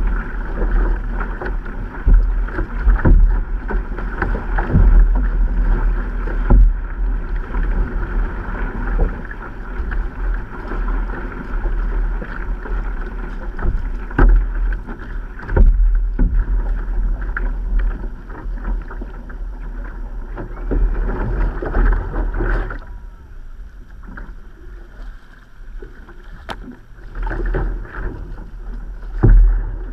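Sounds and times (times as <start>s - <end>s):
low rumble: 0.0s - 29.9s
water splashing along a hull: 0.0s - 29.9s
sudden thumps on hull: 2.0s - 7.0s, 13.6s - 14.7s, 15.4s - 16.8s, 29.1s - 29.9s.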